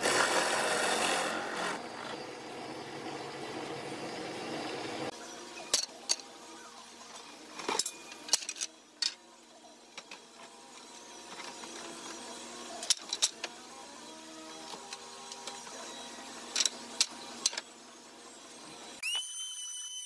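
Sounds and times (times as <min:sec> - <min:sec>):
hole saw cutting wood: 0:00.0 - 0:02.3.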